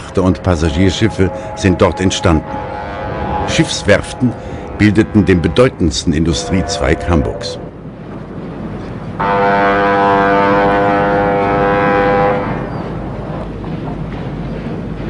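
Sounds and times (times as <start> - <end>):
ship's horn blast: 0.0 - 7.8, 9.2 - 12.8
low harbour rumble: 0.0 - 15.0.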